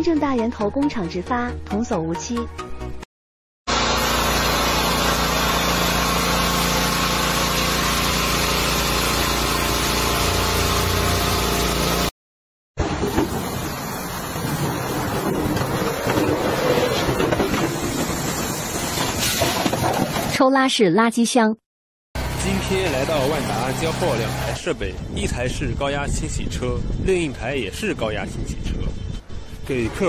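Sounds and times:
pressure washer spraying water: 0:03.7 - 0:12.1, 0:12.9 - 0:16.3, 0:17.0 - 0:19.6, 0:22.2 - 0:24.6
sweeper brush scrubbing bricks: 0:03.7 - 0:12.1.

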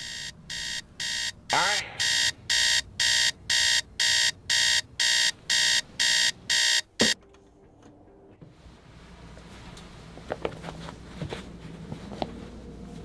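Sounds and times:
alarm clock beeping: 0:00.0 - 0:07.2.

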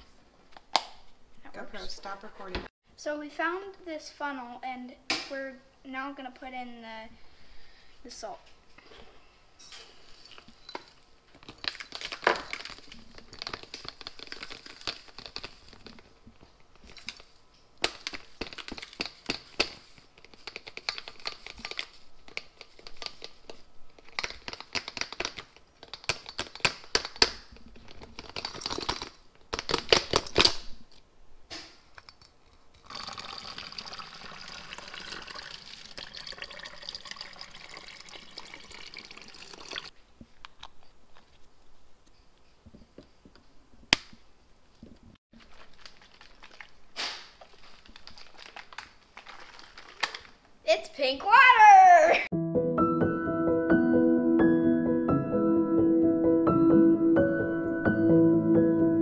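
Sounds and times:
salt rattling through a funnel: 0:09.8 - 0:16.0, 0:32.7 - 0:39.9, 0:45.4 - 0:50.4
faucet running into bottle: 0:32.8 - 0:39.9.

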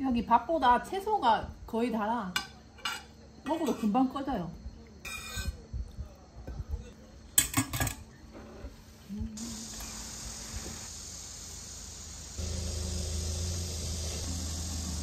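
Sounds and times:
crickets chirping: 0:08.1 - 0:15.0.

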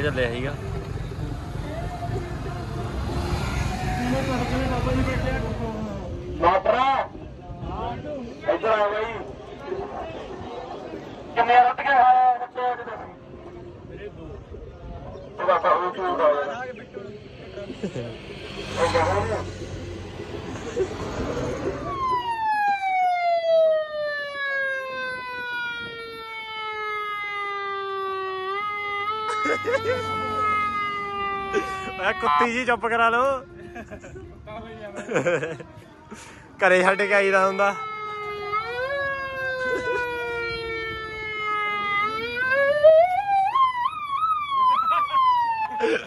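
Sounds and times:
siren winding down: 0:18.4 - 0:32.6, 0:37.7 - 0:45.8.

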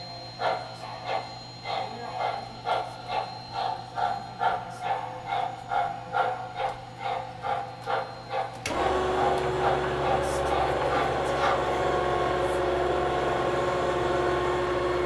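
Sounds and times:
rhythmic hissing pulse: 0:00.0 - 0:08.6
motor drone: 0:00.3 - 0:15.0.

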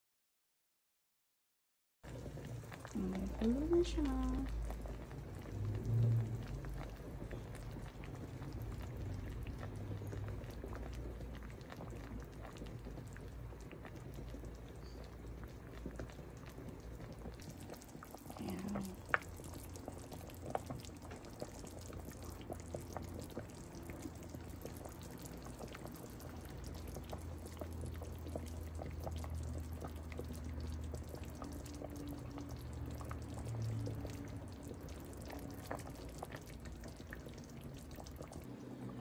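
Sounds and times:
broth boiling and bubbling: 0:02.0 - 0:39.0
low steady hum: 0:02.1 - 0:39.0.

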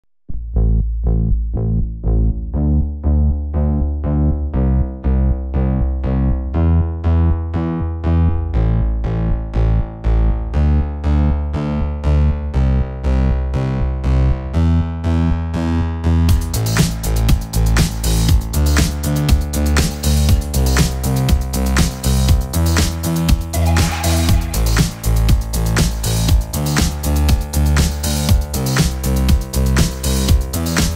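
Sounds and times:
steady bass line: 0:00.1 - 0:30.9
synthesizer keyboard notes: 0:06.5 - 0:30.9.

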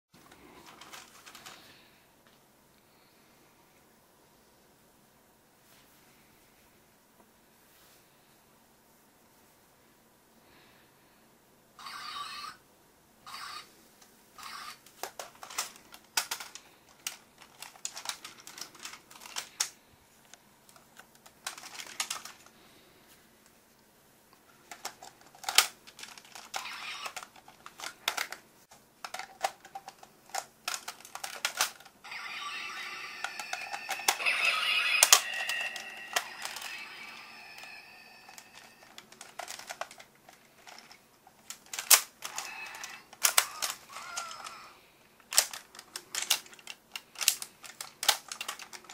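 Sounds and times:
plastic toy clicks and clatter: 0:00.6 - 0:01.7, 0:14.4 - 0:19.8, 0:20.7 - 0:22.5, 0:24.6 - 0:28.4, 0:29.0 - 0:48.9.

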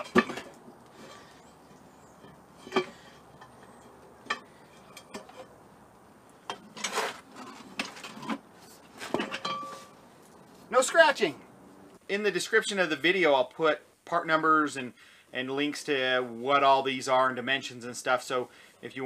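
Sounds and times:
metal scrape: 0:00.0 - 0:05.6, 0:06.4 - 0:10.7
metal tools clinking: 0:00.0 - 0:05.6, 0:06.5 - 0:10.4.

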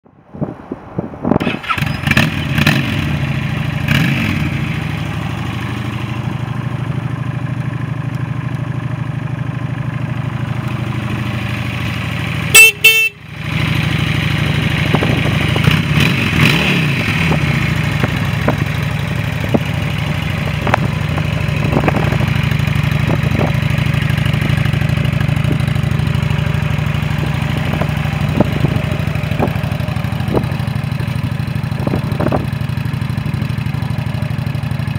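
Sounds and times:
motorcycle engine revving and idling: 0:01.4 - 0:34.9
motorcycle horn: 0:12.5 - 0:13.4.

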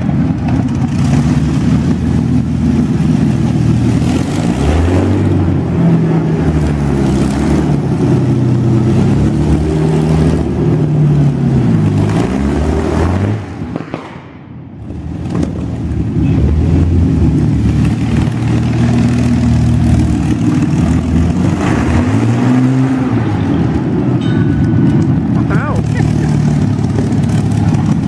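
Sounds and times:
vehicle engine running: 0:00.0 - 0:28.0.

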